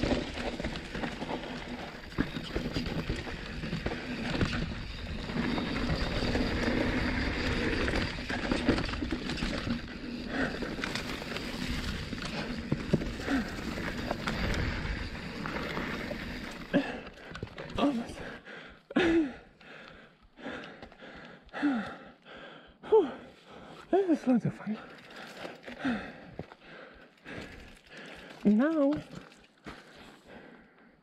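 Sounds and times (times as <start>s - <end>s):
bike tyres rolling on dirt: 0.0s - 18.4s.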